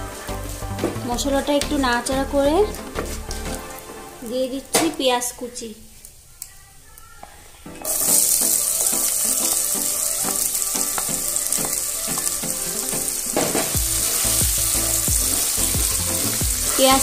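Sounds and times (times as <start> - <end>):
spatula stirring onions: 7.2 - 17.0
onion sizzling in hot oil: 7.8 - 17.0.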